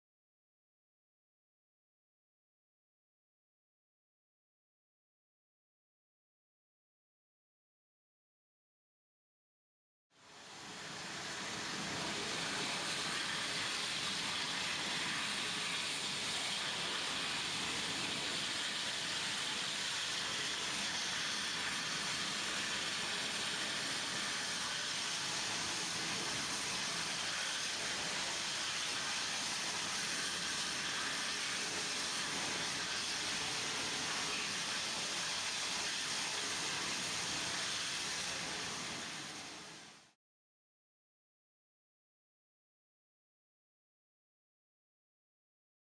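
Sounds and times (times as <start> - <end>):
gas flame hissing: 10.2 - 40.1.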